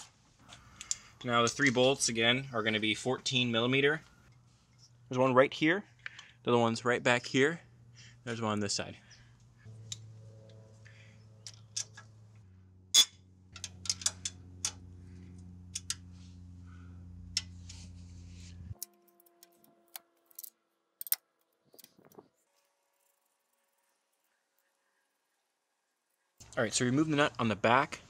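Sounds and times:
low steady hum: 0:00.3 - 0:21.2.

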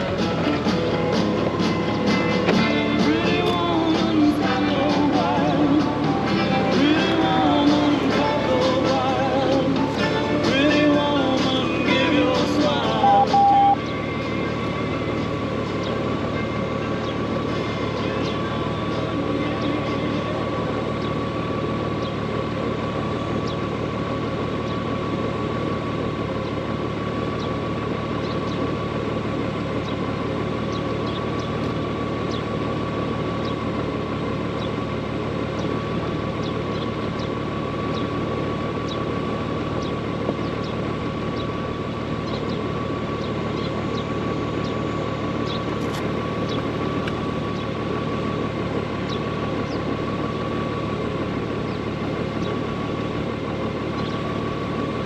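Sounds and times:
motorcycle engine idling: 0:00.0 - 0:55.0
faint high whine: 0:12.8 - 0:17.2.

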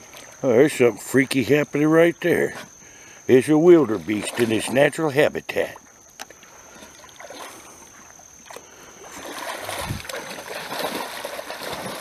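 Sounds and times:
dog splashing through water: 0:08.4 - 0:12.0.

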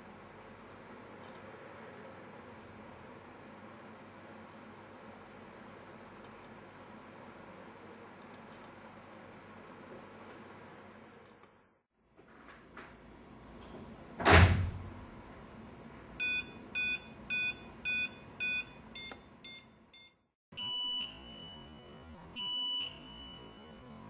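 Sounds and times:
piezo buzzer alarm beeping: 0:16.2 - 0:24.0.

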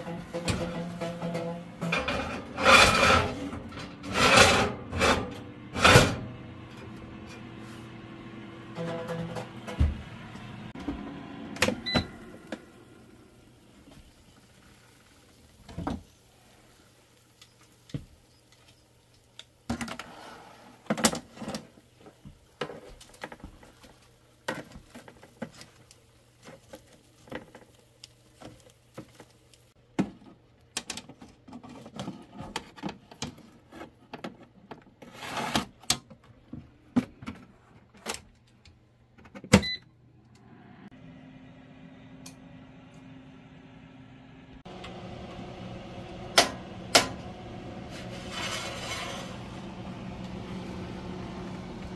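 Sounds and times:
metal tongs clattering on wire racks: 0:00.0 - 0:06.2.

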